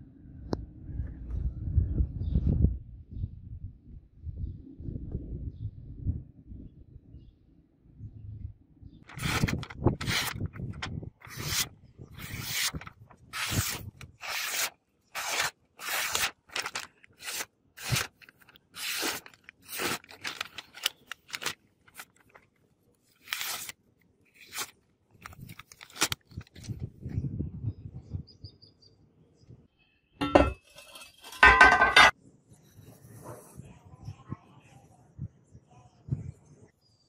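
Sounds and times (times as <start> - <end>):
blade slicing paper: 9.1 - 22.4, 23.1 - 26.4
metallic knocks: 30.2 - 30.7.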